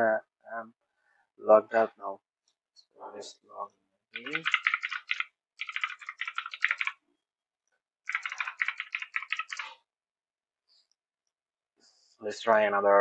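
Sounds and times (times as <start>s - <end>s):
typing on computer keyboard: 4.2s - 7.0s, 8.1s - 9.8s.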